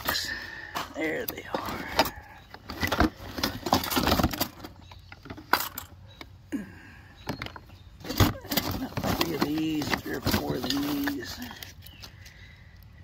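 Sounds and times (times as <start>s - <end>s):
items rattling in plastic box: 1.0s - 5.9s, 7.2s - 12.1s.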